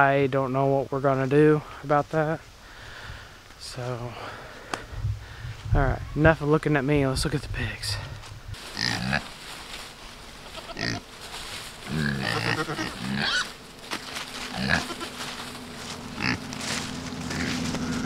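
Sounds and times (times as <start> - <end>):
pigs grunting: 8.8 - 9.3, 10.6 - 11.1, 11.8 - 13.5, 14.4 - 15.2, 16.1 - 16.5, 17.2 - 18.0.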